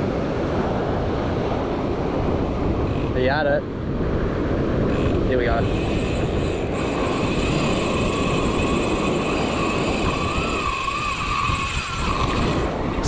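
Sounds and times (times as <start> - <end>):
wind rumbling on microphone: 0.0 - 13.0
drone propellers whining: 4.9 - 13.0.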